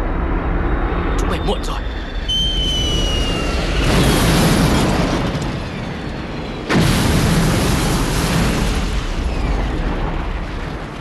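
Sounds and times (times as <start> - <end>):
falling bomb whistle: 1.8 - 4.4
rumbling explosion: 2.7 - 11.0
sharp explosion: 3.3 - 11.0.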